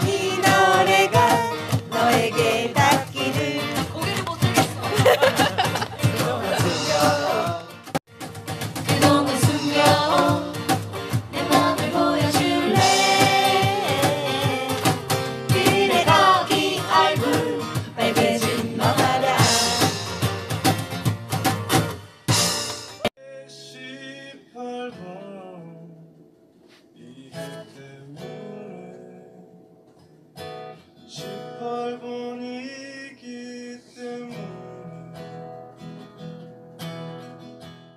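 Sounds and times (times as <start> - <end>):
person singing: 0.0 - 7.7, 8.9 - 10.7, 11.4 - 20.2
cajon beats: 0.0 - 23.1
strummed acoustic guitars: 0.0 - 23.1, 26.7 - 37.9.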